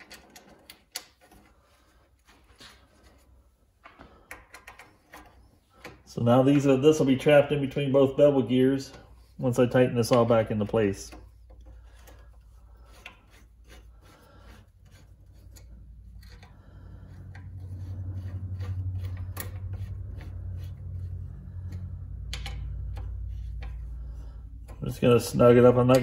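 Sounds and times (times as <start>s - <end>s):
low fluttering hum: 15.1s - 24.8s
hand tools clicking on metal parts: 24.6s - 26.0s.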